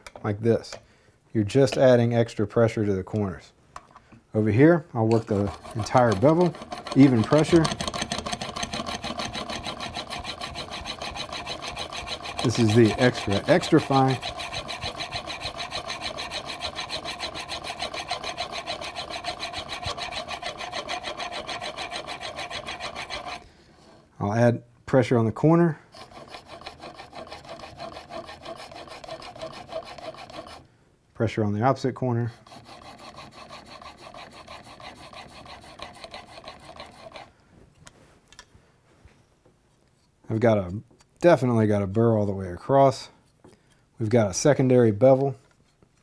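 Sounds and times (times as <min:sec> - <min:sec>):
plane iron scraping on sharpening plate: 0:05.2 - 0:23.4, 0:26.0 - 0:30.6, 0:32.4 - 0:37.3.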